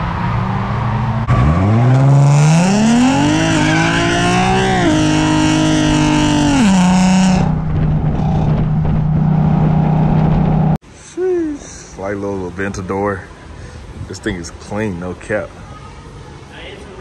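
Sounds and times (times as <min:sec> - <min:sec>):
car engine accelerating: 0:00.0 - 0:10.8.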